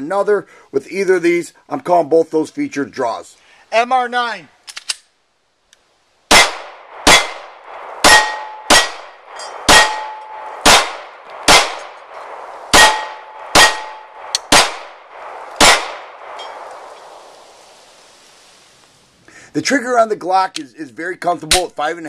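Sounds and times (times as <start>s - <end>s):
pistol shots: 6.3s - 16.7s
steel plate targets ringing: 8.0s - 10.9s, 12.7s - 14.7s, 16.3s - 16.6s.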